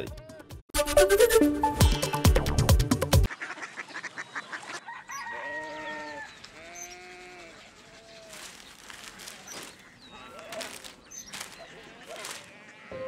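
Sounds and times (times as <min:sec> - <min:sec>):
rooster crowing: 0:04.8 - 0:06.4.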